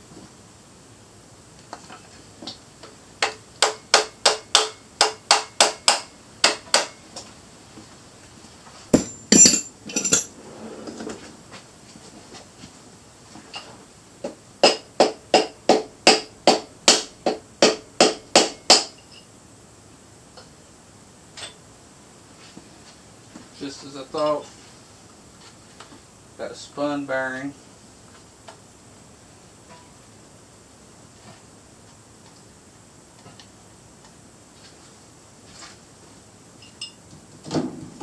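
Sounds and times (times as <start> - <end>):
hammer tapping on metal: 3.2 - 7.0
metallic clatter: 9.0 - 11.2.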